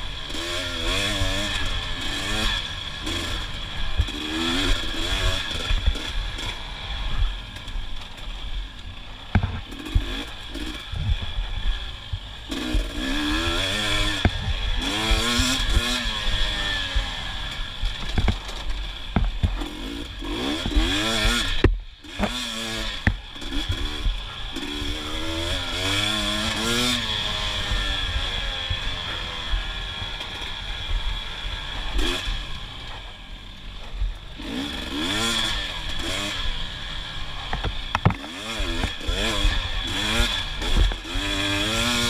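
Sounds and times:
dirt bike engine revving: 0.0s - 42.0s
bike knocks and clatter: 9.3s - 10.2s, 17.9s - 19.7s, 37.5s - 39.4s.

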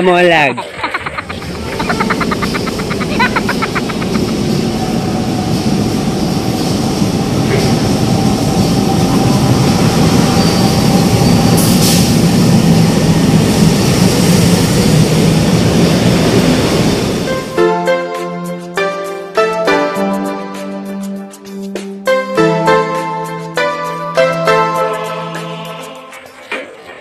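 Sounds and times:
train wheels rumbling on rails: 0.7s - 17.5s.

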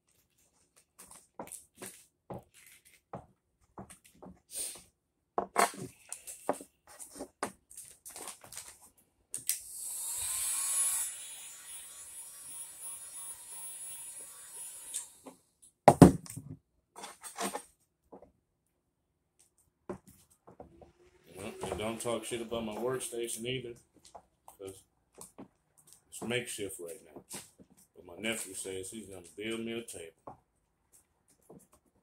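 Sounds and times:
hands rustling vinyl film: 5.7s - 9.6s
heat gun blowing hot air: 9.7s - 15.2s.

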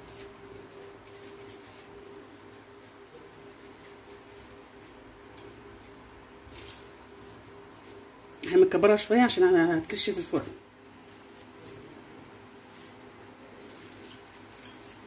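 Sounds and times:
low steady hum: 0.0s - 15.0s
wet squishing of meat: 6.4s - 8.5s, 12.6s - 15.0s.

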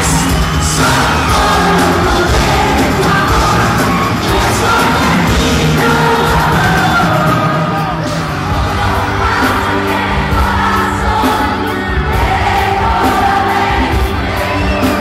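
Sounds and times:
crowd yelling and singing along: 0.0s - 15.0s
singer with band playing: 0.0s - 15.0s.

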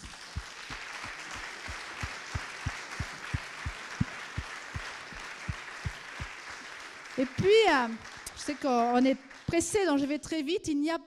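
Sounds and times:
close clapping thumps: 0.0s - 9.8s
audience applauding: 0.0s - 10.0s.

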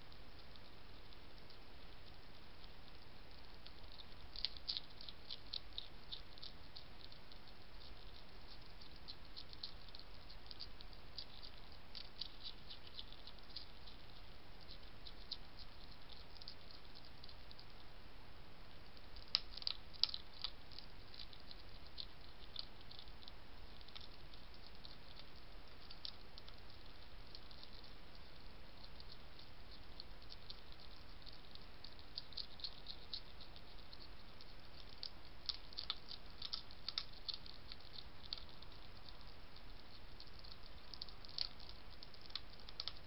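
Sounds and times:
hedgehog crunching dry food: 0.0s - 17.9s, 18.8s - 43.0s
microphone hiss: 0.0s - 43.0s.

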